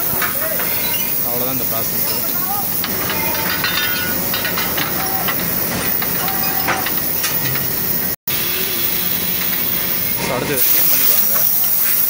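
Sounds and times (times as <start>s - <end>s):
faint clatter: 2.4s - 7.8s
hiss of air and machinery: 5.2s - 12.0s.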